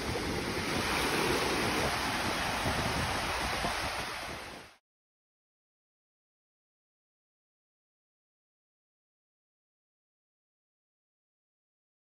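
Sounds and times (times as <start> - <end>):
waves washing onto shore: 0.0 - 4.8
wind buffeting microphone: 0.0 - 4.8.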